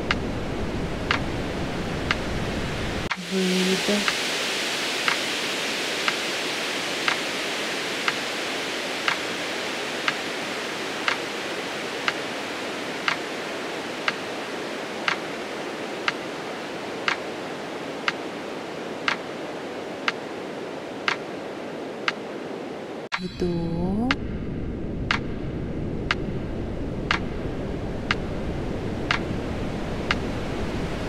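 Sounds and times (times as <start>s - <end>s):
steady hiss: 0.0s - 23.6s.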